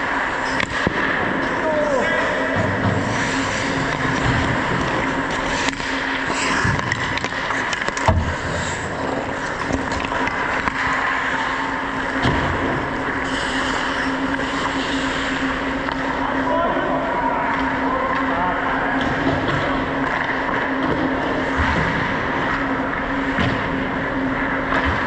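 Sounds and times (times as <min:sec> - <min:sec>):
steady hum: 0:00.0 - 0:25.0
stick and puck clacks: 0:00.4 - 0:01.6, 0:02.7 - 0:16.2, 0:19.0 - 0:23.7
skate blades scraping ice: 0:03.0 - 0:11.7, 0:12.9 - 0:15.6.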